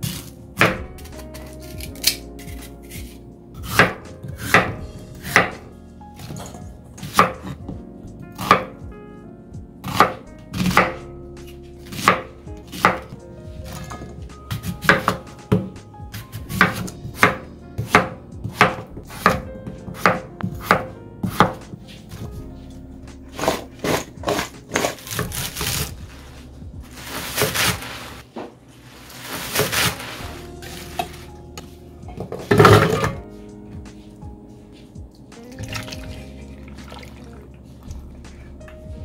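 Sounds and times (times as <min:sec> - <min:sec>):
knife chopping vegetables: 0:00.0 - 0:07.7, 0:08.4 - 0:08.8, 0:09.8 - 0:11.0, 0:11.8 - 0:22.3, 0:23.3 - 0:26.0, 0:26.9 - 0:28.5, 0:29.2 - 0:33.2.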